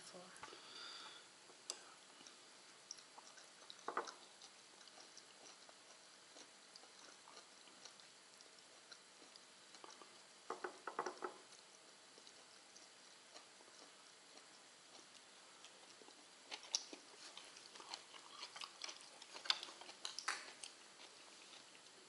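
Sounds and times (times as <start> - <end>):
faint chewing: 0.4 - 22.0.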